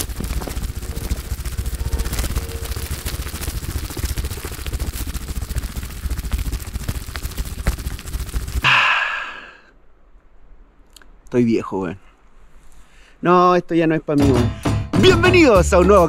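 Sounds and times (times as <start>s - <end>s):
footsteps crunching dry leaves: 0.0s - 8.7s
low rumble of body movement: 0.0s - 8.7s.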